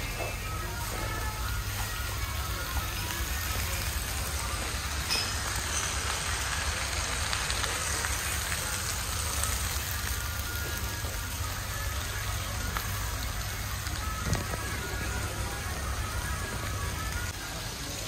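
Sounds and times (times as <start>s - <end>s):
clay pots sizzling: 0.0s - 18.0s.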